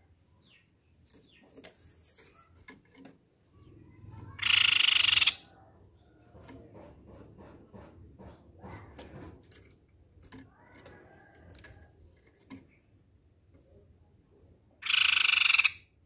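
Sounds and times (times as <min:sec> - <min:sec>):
bird rattling trill: 0:01.4 - 0:03.0, 0:04.1 - 0:05.5, 0:14.8 - 0:15.8.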